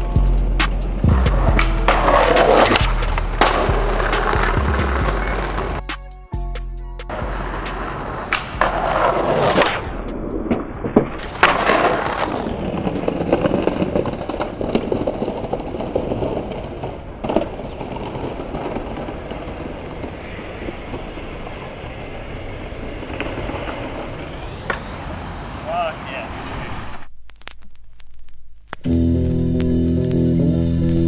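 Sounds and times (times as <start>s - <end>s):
low street hum: 0.0s - 6.0s, 7.0s - 31.0s
skateboard wheels rolling over bricks: 0.9s - 5.9s, 7.1s - 25.6s
skateboard landing clack: 1.6s - 4.6s, 7.2s - 15.6s.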